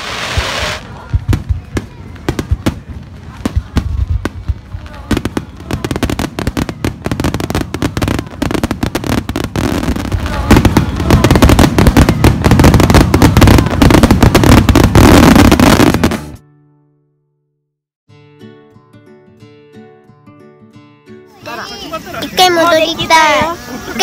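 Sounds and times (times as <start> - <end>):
fireworks crackling and banging: 0.0 - 16.4, 22.2 - 24.0.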